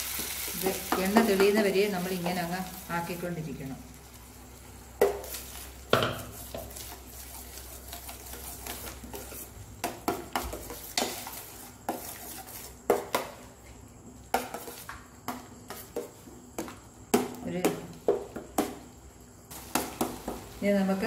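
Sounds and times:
metal spoon stirring in pan: 5.0s - 13.6s, 14.2s - 16.2s.

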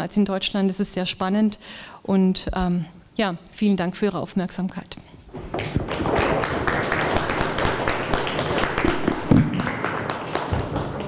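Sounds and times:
audience applause: 5.9s - 11.0s.

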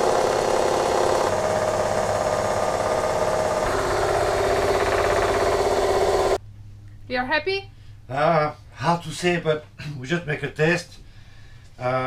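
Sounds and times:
electric motor and pump humming: 0.0s - 6.4s.

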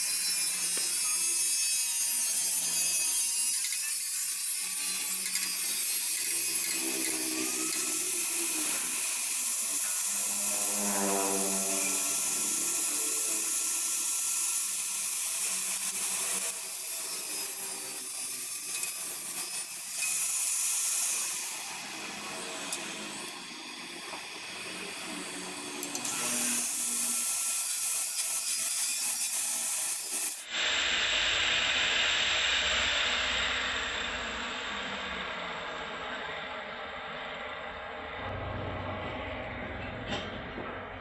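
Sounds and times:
blowtorch flame hissing: 5.0s - 28.3s, 29.3s - 36.7s.

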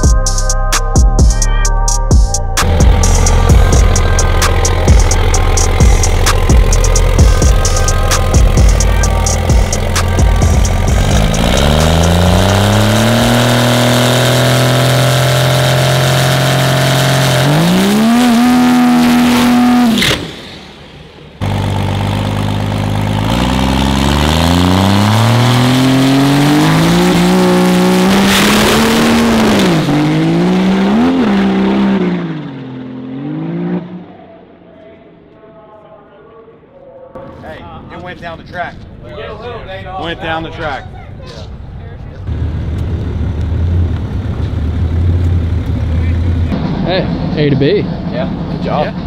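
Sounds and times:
dragster engine revving: 2.6s - 34.1s.

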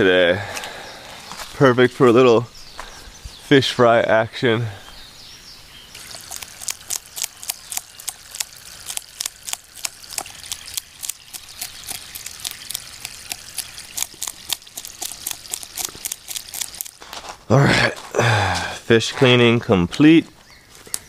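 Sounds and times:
blade scraping fish scales: 6.0s - 17.0s.

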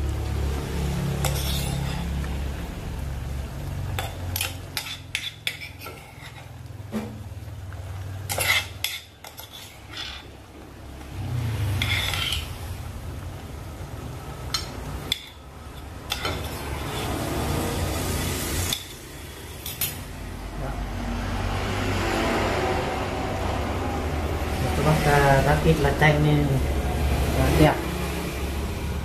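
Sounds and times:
metal spoon scraping pot: 1.1s - 2.2s, 4.0s - 6.6s, 8.2s - 10.4s, 11.6s - 12.8s, 14.5s - 17.5s, 18.6s - 20.0s.

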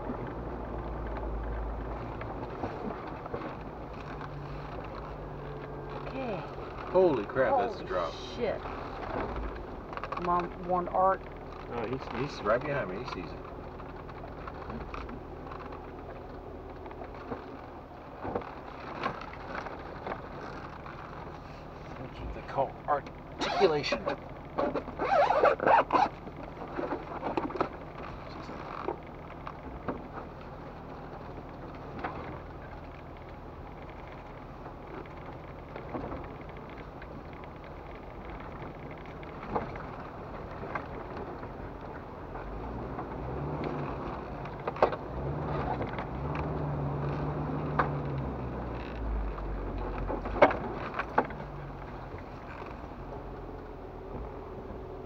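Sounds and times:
body and suspension clunks: 0.0s - 55.0s
car engine crawling: 0.0s - 55.0s
squeaks and creaks: 23.1s - 29.7s, 42.6s - 53.2s.

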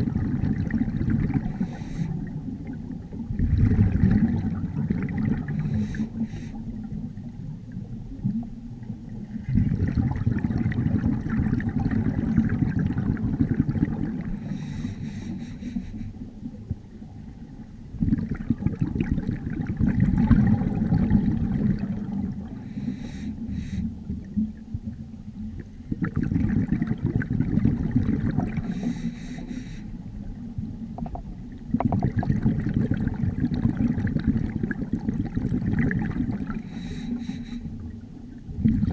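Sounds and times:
bubbling exhalations underwater: 0.0s - 6.2s, 9.4s - 14.5s, 17.9s - 22.8s, 25.8s - 29.0s, 31.0s - 36.9s, 37.6s - 38.9s
hissing regulator inhalations: 1.5s - 2.2s, 5.6s - 6.6s, 14.4s - 16.2s, 22.6s - 24.0s, 28.6s - 30.0s, 36.6s - 37.8s.

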